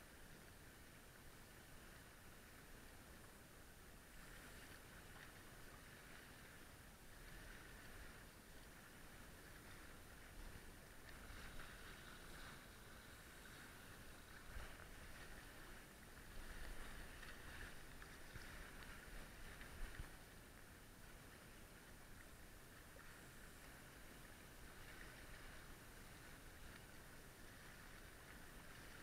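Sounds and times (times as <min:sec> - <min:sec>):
water splashing against hulls: 0:09.6 - 0:20.4.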